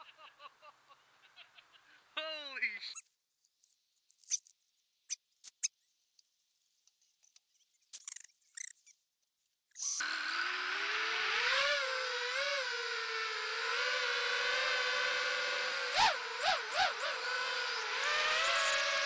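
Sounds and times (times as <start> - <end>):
faint ticks and rustles: 3.0 - 9.7
drone motors whining: 9.7 - 19.0.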